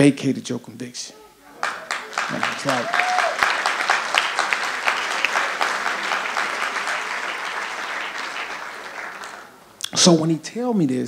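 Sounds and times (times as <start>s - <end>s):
audience applauding: 1.4s - 9.8s.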